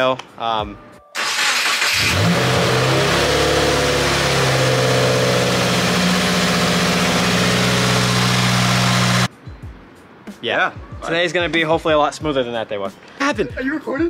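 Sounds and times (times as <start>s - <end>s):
car engine idling: 1.2s - 9.3s.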